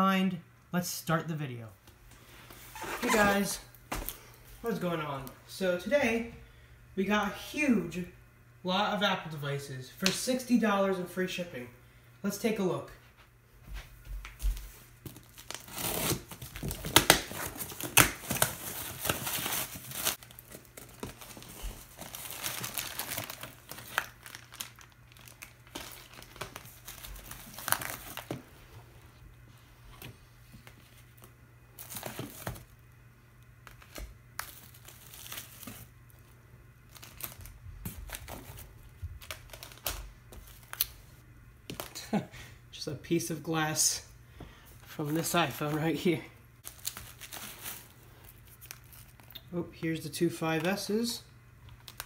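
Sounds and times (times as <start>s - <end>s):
plastic wrap and tape tearing: 15.0s - 28.4s, 33.6s - 35.9s, 39.2s - 41.0s, 46.6s - 49.4s
plastic packing crinkling: 15.0s - 28.5s, 30.6s - 32.8s, 33.6s - 36.2s, 36.9s - 41.0s, 46.6s - 49.5s, 51.7s - 52.0s.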